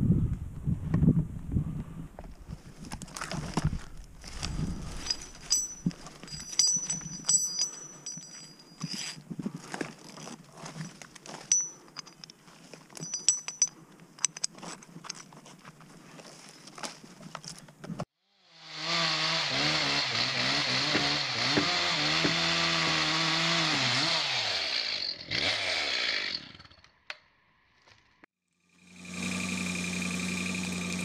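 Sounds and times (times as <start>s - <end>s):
cable handling clicks and rustles: 2.2s - 18.1s
chainsaw running: 18.5s - 26.7s, 28.6s - 31.0s.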